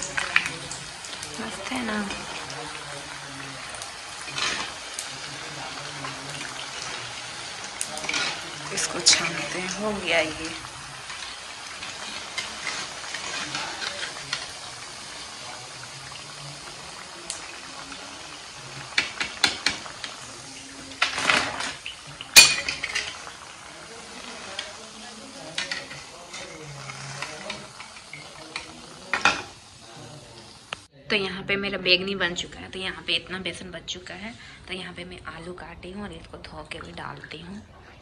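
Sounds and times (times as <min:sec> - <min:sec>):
oil sizzling in a pan: 0:00.0 - 0:30.9
metal skimmer clinking on pan: 0:22.2 - 0:23.2.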